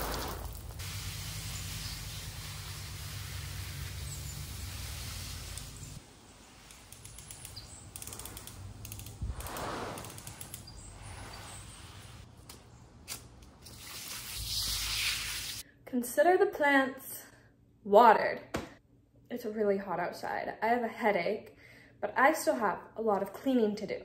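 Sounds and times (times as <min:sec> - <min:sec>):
hose nozzle spraying water: 0:00.0 - 0:12.3, 0:13.1 - 0:15.6.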